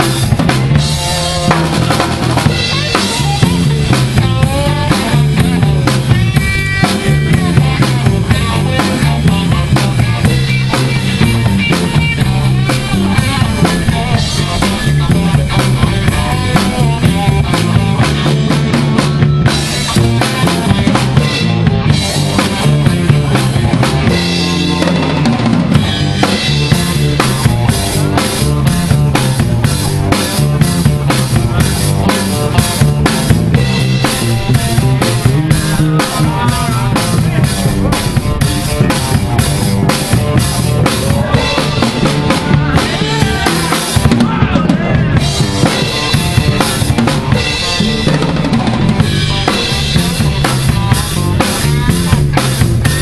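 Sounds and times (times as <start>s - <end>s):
drum kit beating: 0.0s - 53.0s
electric blues band playing: 0.0s - 53.0s
electric guitar: 0.0s - 53.0s
walking electric bass line: 0.0s - 53.0s.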